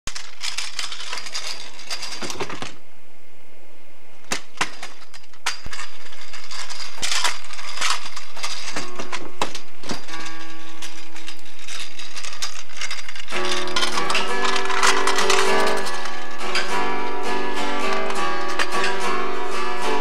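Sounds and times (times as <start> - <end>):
steady musical tones: 6.2 - 20.0.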